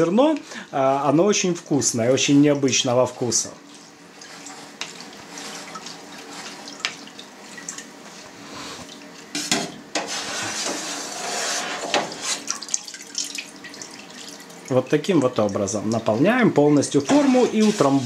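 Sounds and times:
whey dripping and splashing: 3.6 - 8.1, 12.4 - 16.3.

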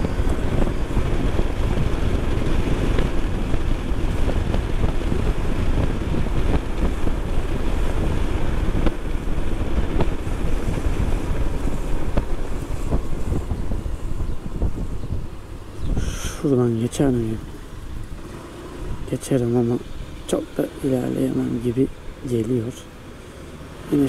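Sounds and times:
scooter engine and tyre rumble: 0.0 - 24.0
wind buffeting microphone: 0.0 - 24.0.

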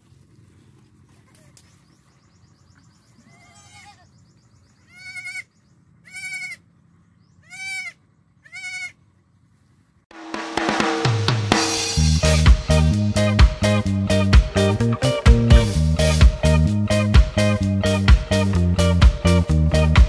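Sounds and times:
young goat bleating: 3.2 - 4.2, 4.8 - 6.7, 7.4 - 9.0
music with drums and cymbals: 10.1 - 20.0.

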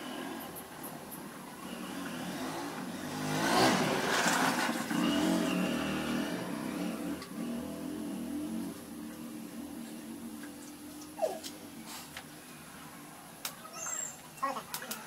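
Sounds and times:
vehicle engine passing by: 0.0 - 12.0.

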